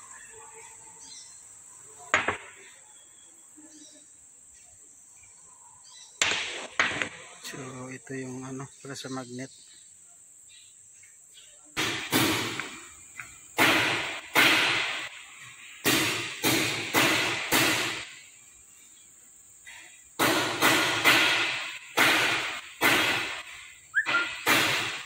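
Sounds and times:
high insect chirr: 0:00.0 - 0:25.0
sharp knocks: 0:02.1 - 0:02.6, 0:06.2 - 0:07.2, 0:11.8 - 0:12.8, 0:13.6 - 0:15.1, 0:15.8 - 0:18.1, 0:20.2 - 0:23.4, 0:24.1 - 0:25.0.

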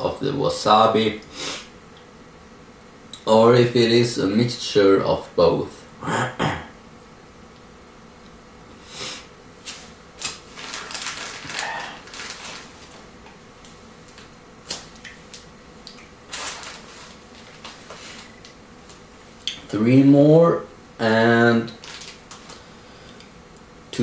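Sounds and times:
plastic bag crinkling: 0:09.7 - 0:13.4, 0:16.3 - 0:19.0, 0:21.7 - 0:22.7.

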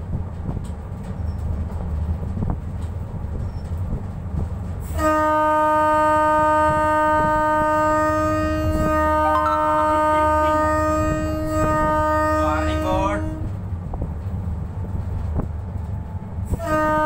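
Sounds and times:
locomotive engine rumble: 0:00.0 - 0:17.0
locomotive horn blast: 0:04.8 - 0:13.6, 0:16.4 - 0:17.0.

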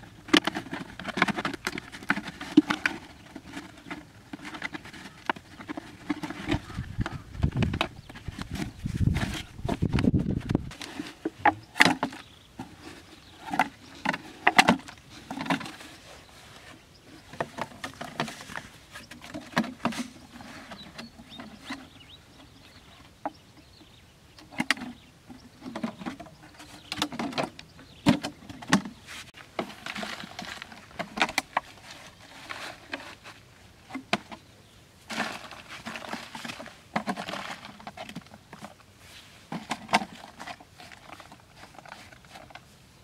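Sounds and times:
plastic bottles crinkling: 0:00.0 - 0:21.9, 0:24.5 - 0:34.4, 0:35.0 - 0:42.8
hands rustling in sand: 0:29.0 - 0:30.6.

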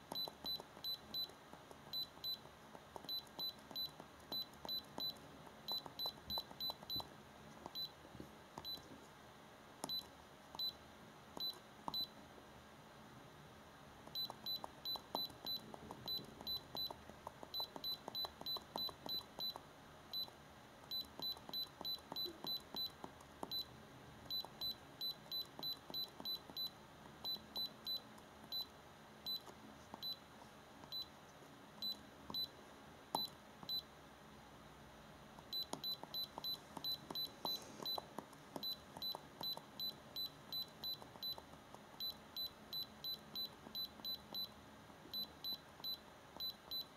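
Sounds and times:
scan tool beeping: 0:00.1 - 0:07.1, 0:14.1 - 0:20.3, 0:20.9 - 0:30.2, 0:35.5 - 0:46.9.

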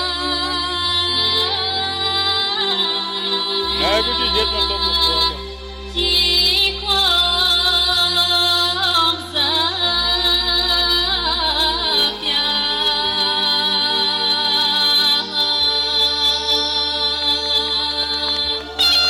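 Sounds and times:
woman singing into microphone: 0:00.0 - 0:19.0
bass line: 0:03.6 - 0:14.8.

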